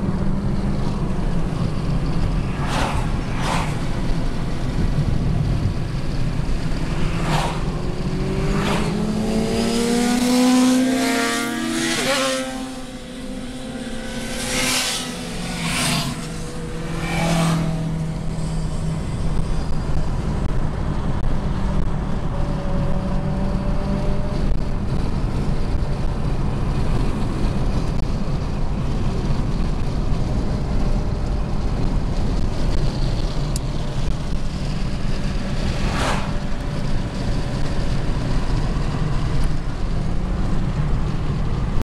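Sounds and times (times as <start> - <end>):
vehicles whooshing past: 0.0 - 20.4, 32.0 - 41.7
car road and engine noise: 0.0 - 41.8.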